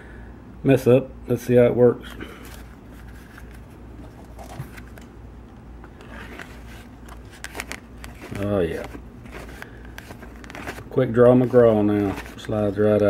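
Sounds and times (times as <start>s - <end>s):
leather rubbing and scraping: 6.0s - 12.5s.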